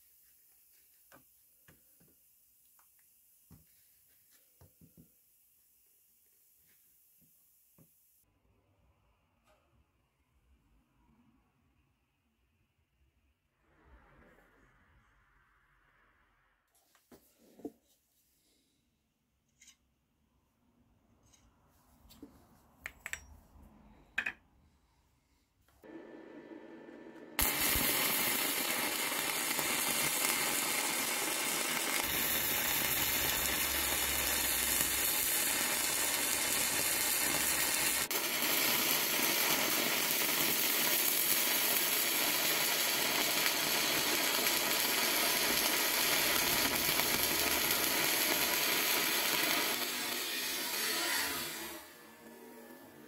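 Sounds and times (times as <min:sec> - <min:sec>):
welding arc crackling and hissing: 0:00.0 - 0:07.8, 0:27.4 - 0:53.0.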